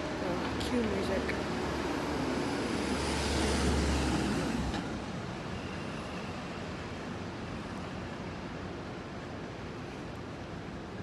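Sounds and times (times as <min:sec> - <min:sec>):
vehicle engine rumble passing: 0:00.0 - 0:05.2
street traffic noise: 0:00.0 - 0:11.0.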